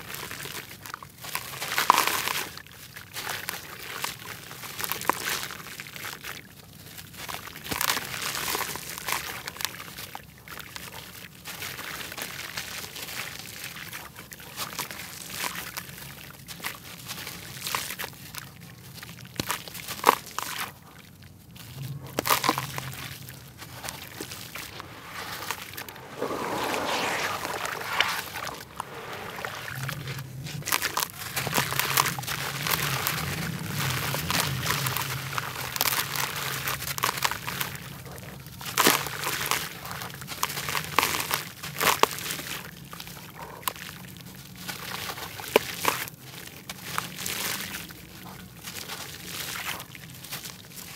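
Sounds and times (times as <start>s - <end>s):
wet dirt crumbling: 18.9s - 38.0s
grit trickling: 18.9s - 39.6s
water sloshing: 22.2s - 36.3s.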